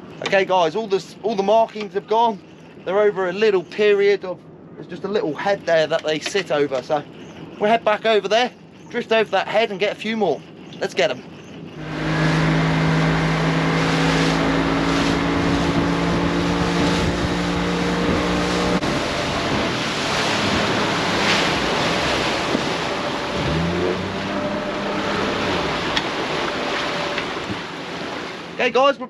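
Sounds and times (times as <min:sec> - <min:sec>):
outboard motor running: 0:00.0 - 0:29.0
wake water rushing: 0:05.0 - 0:29.0
wind on microphone: 0:11.5 - 0:28.6
short rising note: 0:11.8 - 0:27.7.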